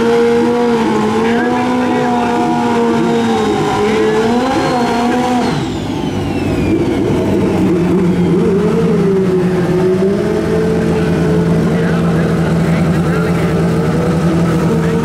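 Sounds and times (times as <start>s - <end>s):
motorcycle engines revving: 0.0s - 15.0s
falling whistle: 3.1s - 9.0s.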